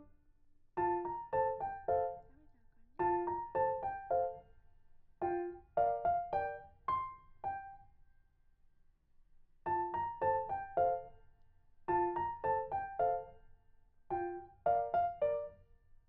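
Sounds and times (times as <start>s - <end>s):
bright keyboard phrases: 3.0s - 4.4s, 5.2s - 7.7s.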